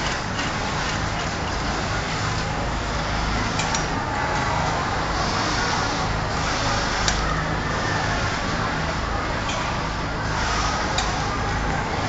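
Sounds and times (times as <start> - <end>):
sewing machines humming: 0.0 - 12.0.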